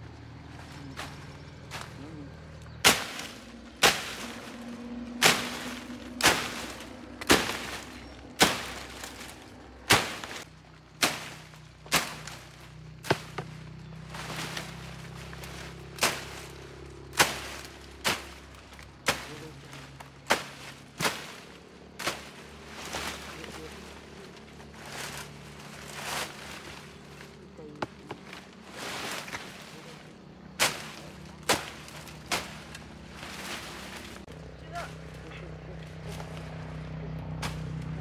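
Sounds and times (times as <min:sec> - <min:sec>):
hand tool chopping into soil: 0:02.8 - 0:13.6, 0:15.3 - 0:23.7, 0:30.5 - 0:34.2.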